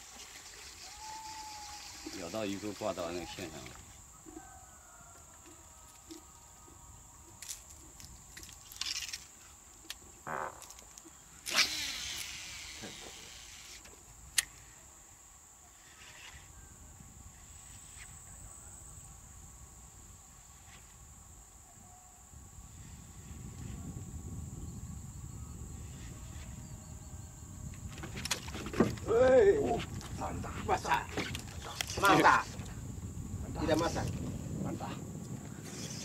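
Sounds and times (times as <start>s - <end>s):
reel spool whirring: 0.0s - 3.8s, 11.5s - 13.9s
high insect buzz: 0.0s - 34.3s
sharp reel click: 11.4s - 14.6s.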